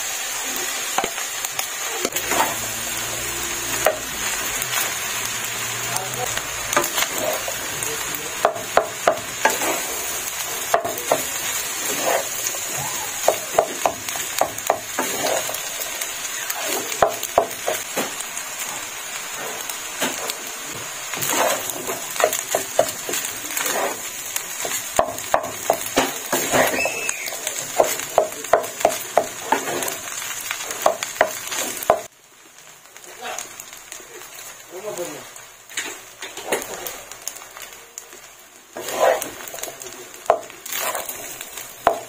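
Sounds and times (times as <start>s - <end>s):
rice sizzling in a pan: 0.0s - 42.0s
spatula scraping and knocking pan: 2.0s - 2.7s, 3.7s - 4.1s, 6.7s - 15.7s, 16.5s - 18.2s, 19.4s - 32.1s, 38.8s - 42.0s.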